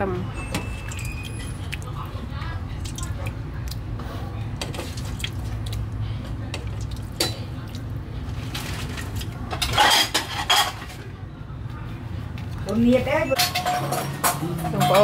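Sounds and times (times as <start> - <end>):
ladle scraping pot: 8.4 - 11.0.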